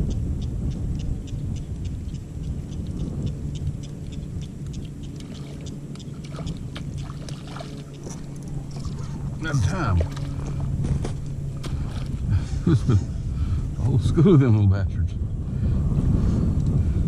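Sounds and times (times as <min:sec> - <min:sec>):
wind and water rumble: 0:00.0 - 0:17.0
fishing reel ticking: 0:00.1 - 0:08.5.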